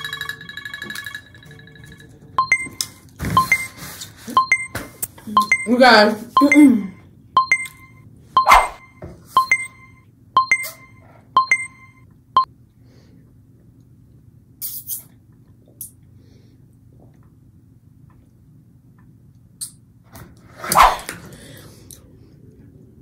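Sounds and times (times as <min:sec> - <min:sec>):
electronic timer alarm beeping: 0:00.0 - 0:12.5.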